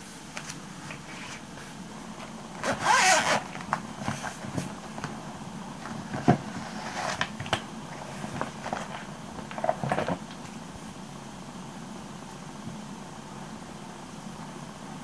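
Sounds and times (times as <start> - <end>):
plastic rustling: 2.1 - 5.1.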